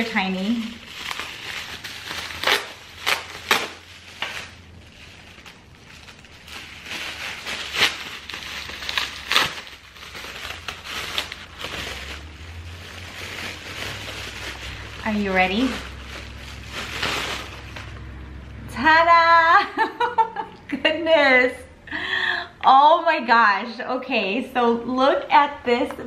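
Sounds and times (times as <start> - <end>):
sharp crackles: 0.0 - 17.9
bubble wrap pouch crinkling: 0.0 - 18.0.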